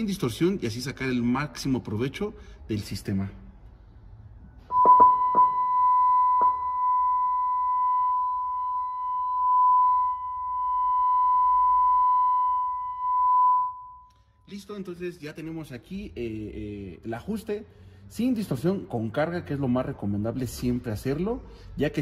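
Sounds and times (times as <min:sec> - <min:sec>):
sine-wave test tone: 0:04.6 - 0:14.4.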